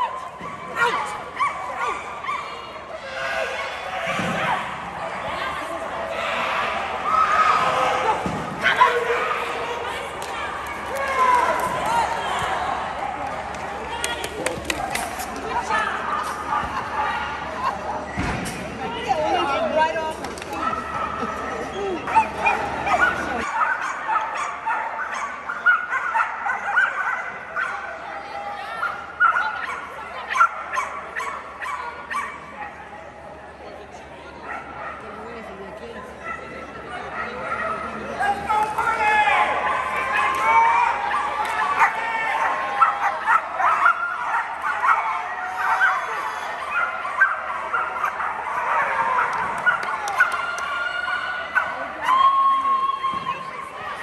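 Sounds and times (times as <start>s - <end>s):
dogs barking and yipping: 22.0s - 27.9s, 41.1s - 52.2s.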